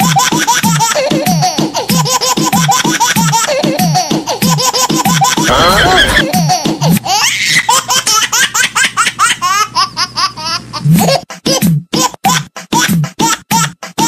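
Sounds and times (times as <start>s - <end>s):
high-pitched laughter: 4.6s - 8.1s.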